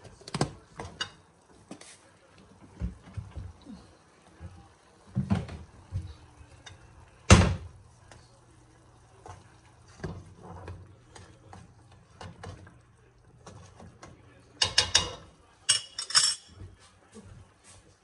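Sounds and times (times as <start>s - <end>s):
clattering clinks: 15.7s - 16.5s.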